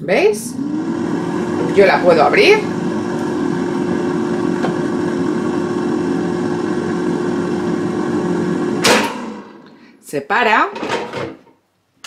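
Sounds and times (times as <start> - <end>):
air fryer fan humming: 0.0 - 9.9.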